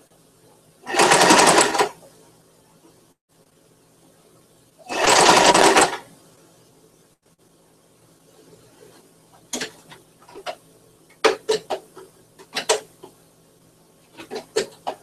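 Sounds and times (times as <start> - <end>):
sewing machine clicks and clacks: 0.9 - 2.0, 4.9 - 6.0.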